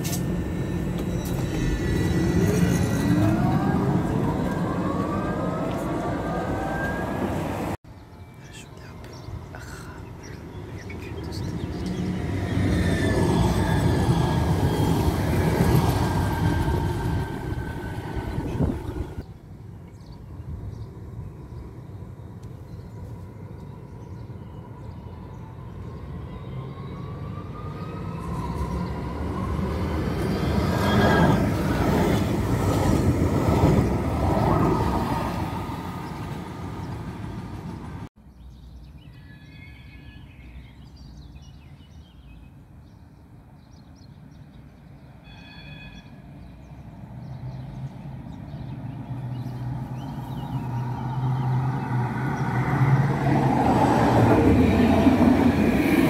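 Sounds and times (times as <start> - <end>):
electric tram motors whining: 0.0 - 7.8, 10.7 - 19.2.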